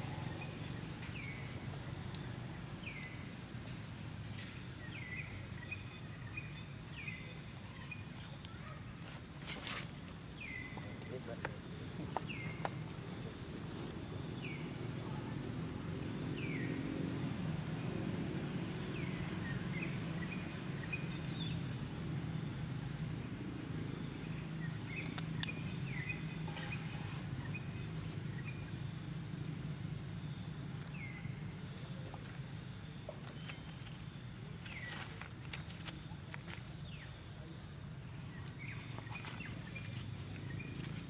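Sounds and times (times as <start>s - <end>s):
high insect drone: 9.0s - 41.0s.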